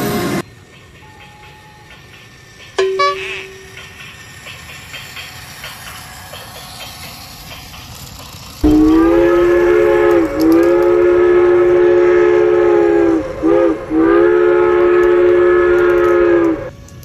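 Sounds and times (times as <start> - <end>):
train horn blasts: 2.8 - 3.7, 8.6 - 16.8.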